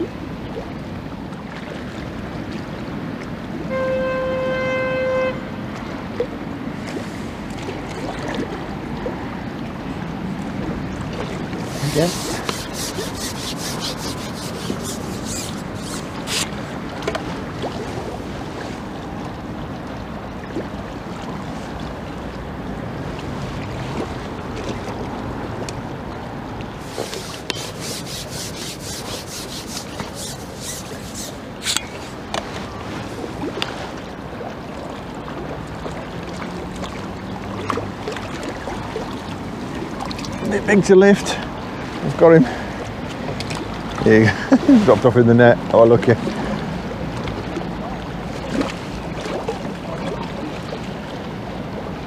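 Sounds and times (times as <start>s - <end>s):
river water: 0.0s - 52.0s
wind: 0.0s - 52.0s
rapid light clicking and rubbing: 11.6s - 16.6s, 26.8s - 32.2s.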